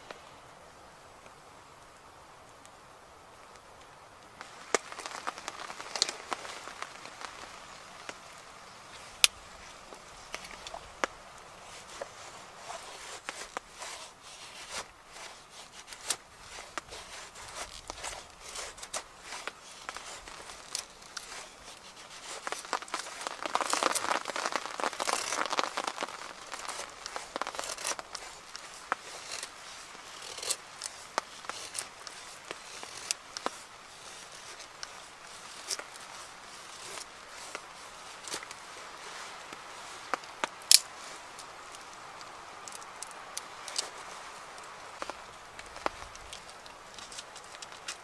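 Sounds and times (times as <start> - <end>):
knife scraping wood: 11.7 - 38.6.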